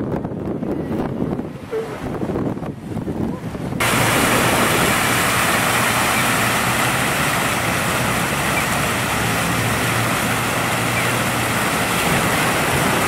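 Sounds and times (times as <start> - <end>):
low hum of road traffic: 0.0 - 13.0
fountain water splashing into pool: 3.8 - 13.0.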